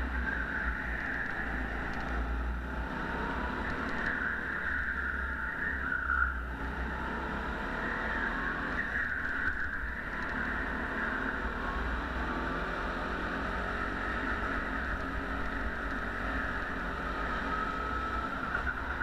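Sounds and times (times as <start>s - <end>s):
go-kart engine running: 0.0s - 19.0s.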